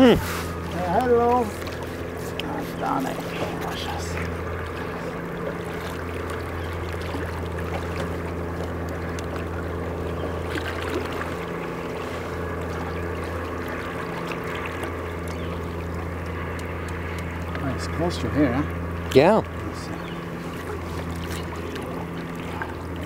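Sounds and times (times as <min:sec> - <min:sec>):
outboard motor idling: 0:00.0 - 0:23.0
water around hull: 0:00.0 - 0:23.0.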